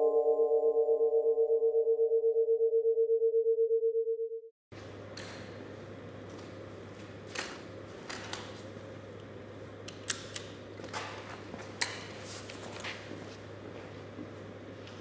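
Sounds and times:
steady low hum: 4.8s - 15.0s
people moving on concrete floor: 5.7s - 8.8s, 10.8s - 15.0s.

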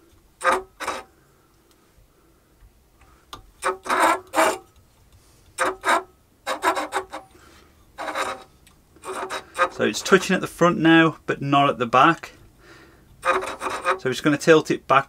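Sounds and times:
metal tip scraping over board: 0.4s - 1.1s, 3.6s - 4.7s, 5.6s - 7.4s, 8.0s - 10.3s, 13.2s - 14.1s.

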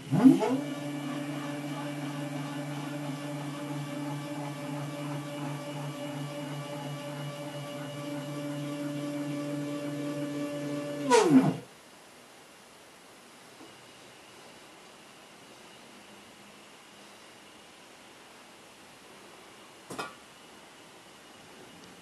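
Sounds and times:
stepper motors whining: 0.0s - 11.6s.

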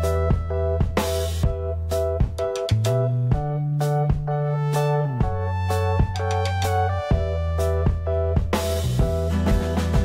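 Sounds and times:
held bass note: 0.0s - 2.4s
sustained keyboard chords: 0.0s - 10.0s
drum hits: 7.9s - 10.0s.

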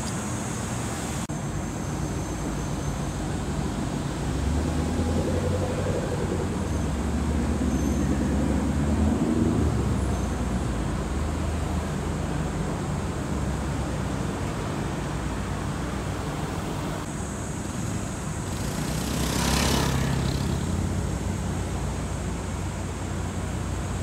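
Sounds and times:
street traffic noise: 0.0s - 24.0s
car passing by: 3.6s - 12.6s, 18.4s - 22.9s.

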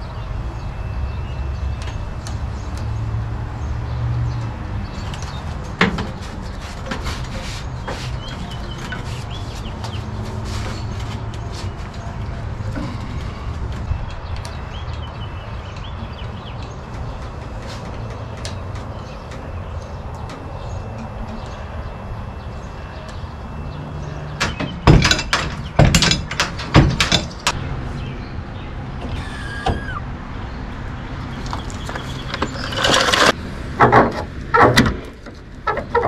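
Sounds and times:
loud metal knocks and clanks: 24.4s - 27.6s.

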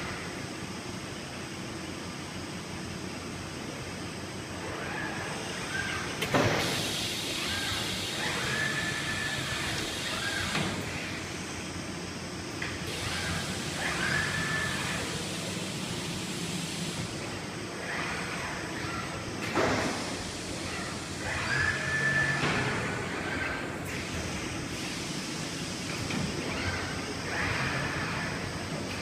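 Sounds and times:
steady machine hum: 0.0s - 29.0s
servo drives whining: 17.2s - 24.3s.

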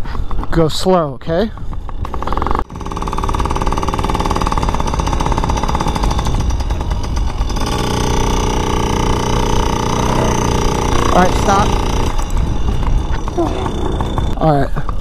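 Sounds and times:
small two-stroke engine buzzing: 1.3s - 15.0s.

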